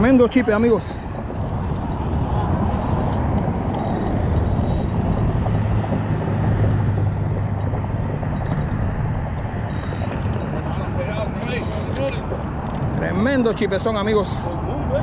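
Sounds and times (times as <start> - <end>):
passing vehicle engine rumble: 0.0 - 15.0.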